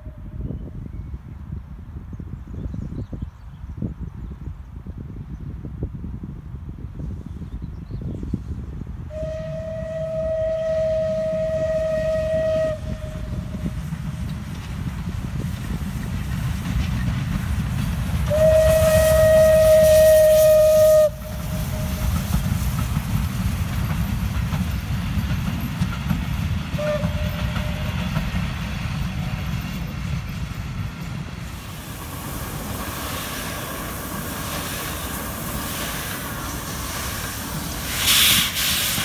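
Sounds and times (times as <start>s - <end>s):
low rumble of passing train: 0.0s - 39.0s
steam locomotive whistle: 9.1s - 13.8s, 18.2s - 22.4s, 26.7s - 28.2s, 37.8s - 39.0s.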